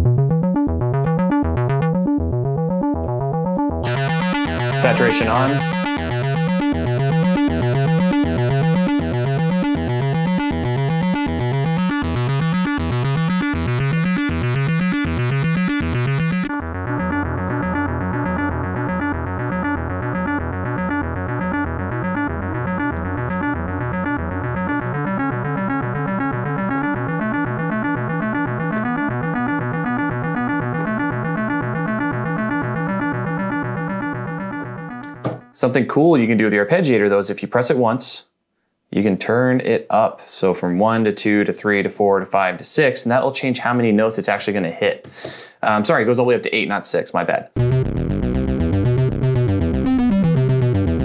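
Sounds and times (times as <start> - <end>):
synthesizer bass line: 0.0 - 35.6, 47.6 - 51.0.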